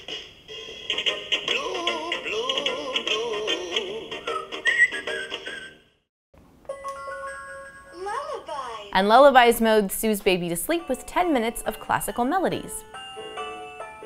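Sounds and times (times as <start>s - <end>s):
children's song from small speaker: 1.4s - 5.8s.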